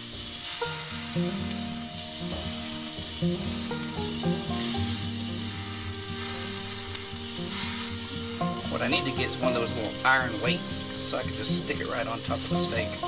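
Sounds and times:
faint background music: 0.0 - 13.0
steak sizzling in skillet: 0.0 - 13.0.

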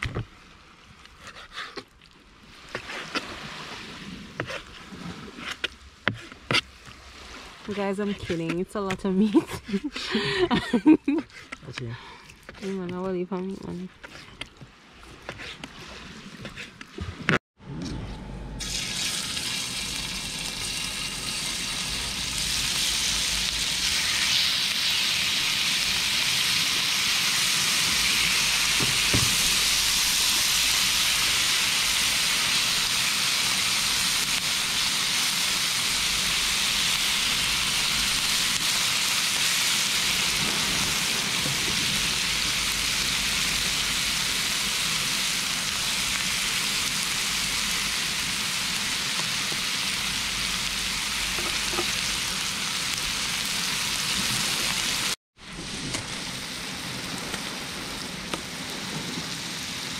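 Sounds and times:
meat sizzling on griddle: 18.6 - 55.2.

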